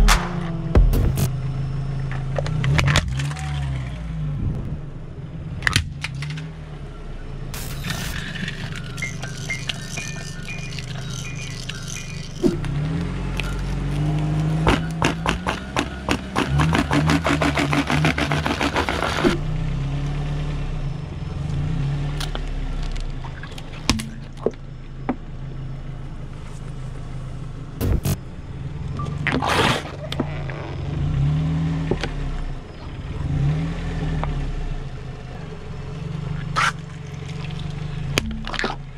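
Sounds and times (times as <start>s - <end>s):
car engine idling: 0.0s - 33.3s, 34.2s - 38.9s
tyre crushing plastic objects: 12.4s - 19.4s.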